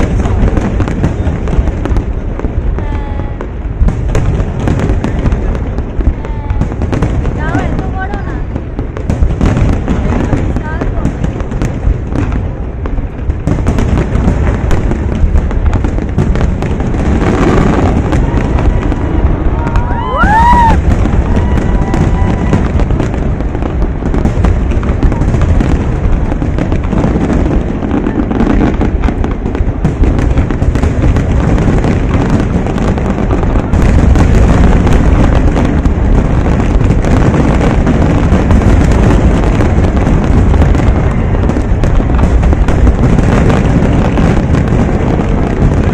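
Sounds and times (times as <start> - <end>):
fireworks booms and crackles: 0.0 - 45.9
firework whistle: 17.4 - 23.0.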